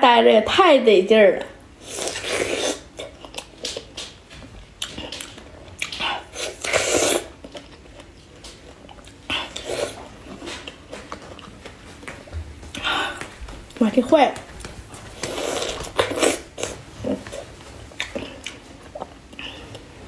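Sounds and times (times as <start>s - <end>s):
biting into strawberries: 4.8s - 11.6s, 15.2s - 19.9s.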